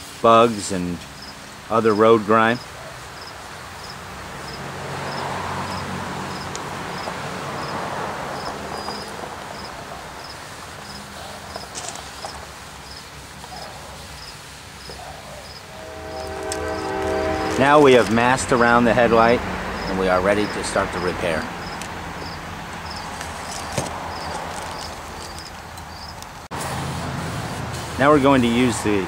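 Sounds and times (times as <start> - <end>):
cricket chirping: 2.6 - 17.5, 19.7 - 26.3
rag rubbing plastic lens: 10.8 - 18.2, 21.6 - 26.5
steady low hum: 12.6 - 20.7
sustained musical tones: 15.6 - 20.8.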